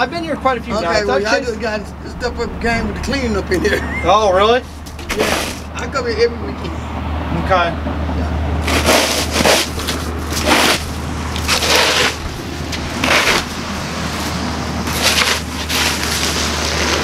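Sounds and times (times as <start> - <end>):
snow shovel scraping pavement: 4.7 - 5.7, 8.6 - 17.0.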